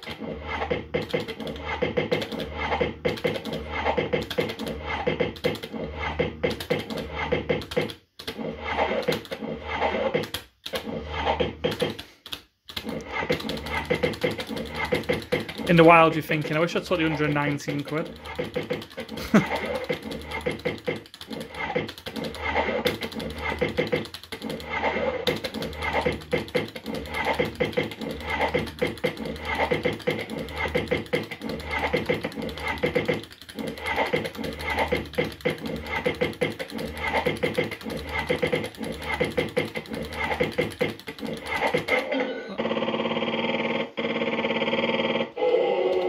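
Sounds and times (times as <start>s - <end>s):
fruit machine reels spinning: 12.9s - 41.9s.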